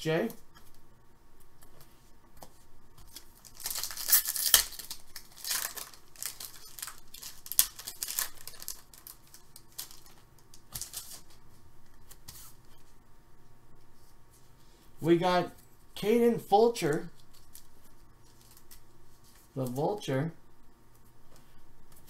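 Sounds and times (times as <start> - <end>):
foil pack tearing and crinkling: 3.1 - 11.3.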